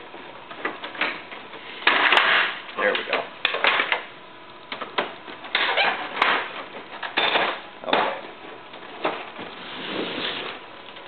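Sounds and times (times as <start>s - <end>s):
plastic clattering and scraping: 4.7s - 11.0s.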